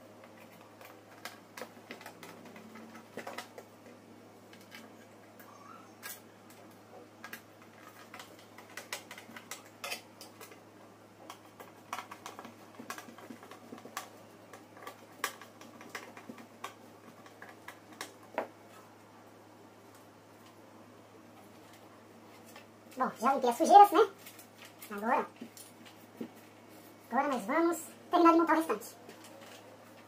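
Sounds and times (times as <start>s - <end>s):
faint low hum: 0.0s - 30.0s
screwdriver tapping plastic fans: 0.2s - 5.0s, 6.0s - 10.6s, 11.2s - 18.6s.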